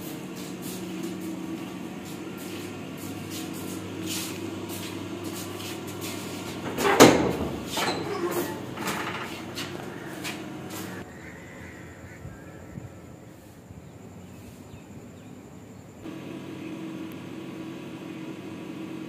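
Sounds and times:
footsteps: 0.0s - 11.1s
steady low hum: 0.0s - 19.0s
door knocks and rattles: 6.6s - 9.8s.

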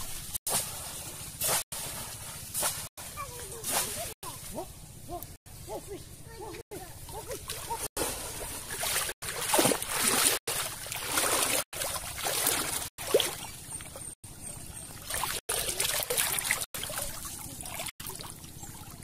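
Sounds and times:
water sloshing as person wades: 7.1s - 14.2s, 15.0s - 19.0s.

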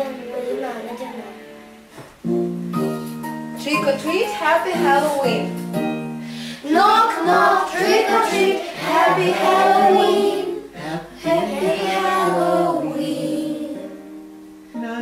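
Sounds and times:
backing music: 0.0s - 15.0s
children singing together: 6.6s - 14.2s.

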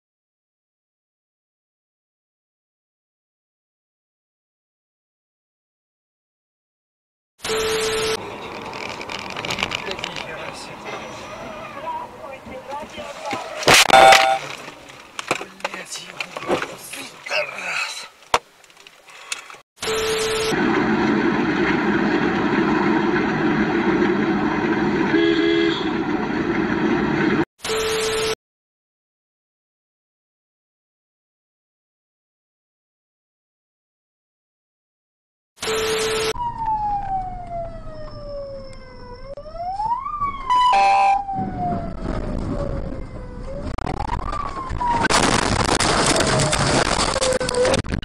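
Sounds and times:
vehicle road and engine noise: 7.4s - 17.2s, 18.1s - 27.5s, 35.7s - 45.1s
loud blare: 13.7s - 14.4s
siren wailing: 13.8s - 14.4s, 35.7s - 45.2s, 45.9s - 47.8s
car horn: 13.9s - 14.4s, 25.1s - 26.0s
short steady beep: 13.9s - 14.4s.

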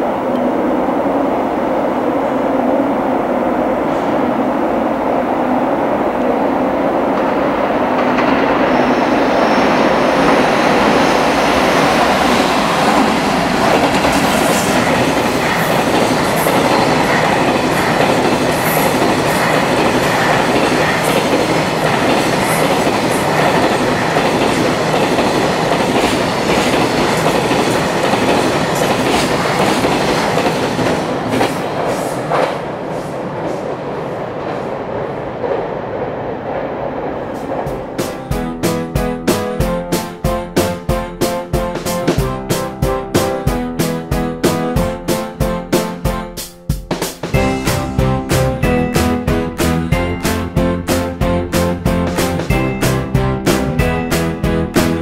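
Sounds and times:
train wheels rumbling and clattering: 0.0s - 46.0s, 46.8s - 55.0s.

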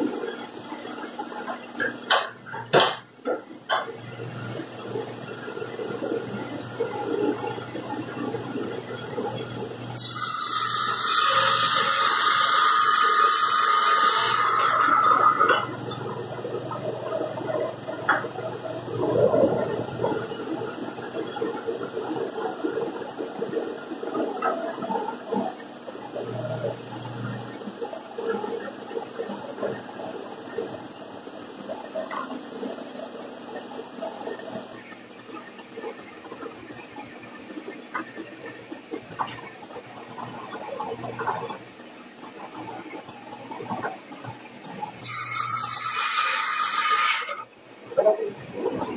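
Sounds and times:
saw cutting board whine: 10.0s - 16.4s, 45.0s - 47.4s.

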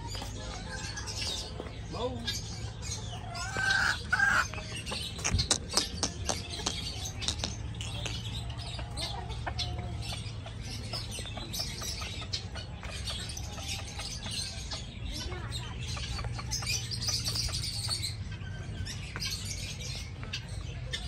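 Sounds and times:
chickens clucking: 0.0s - 21.0s
sharp clicks: 5.1s - 8.4s.

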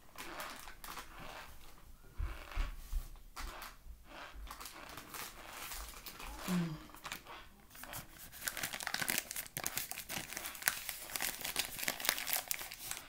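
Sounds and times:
paper bag rustling: 7.8s - 13.0s.

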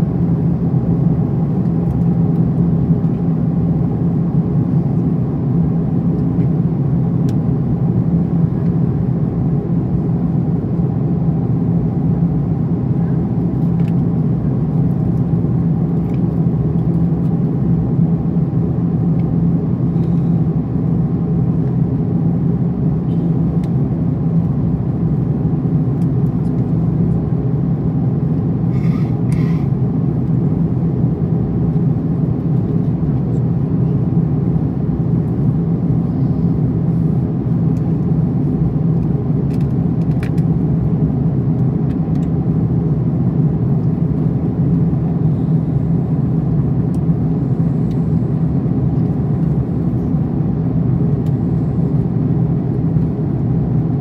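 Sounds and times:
aircraft cabin rumble: 0.0s - 54.0s.

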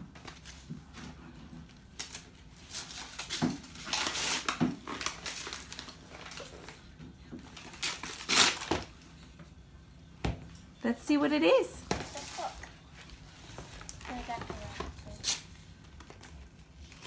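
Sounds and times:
wrapping paper crinkling and tearing: 1.7s - 6.9s, 7.5s - 9.0s, 12.1s - 17.0s.

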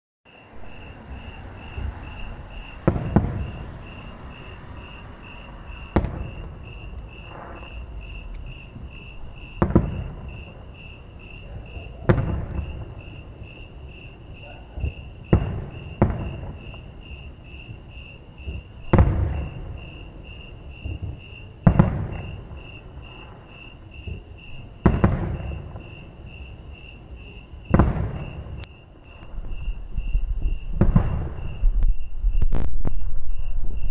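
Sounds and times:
distant firework booms: 0.4s - 17.8s, 18.4s - 26.5s, 27.6s - 33.9s.

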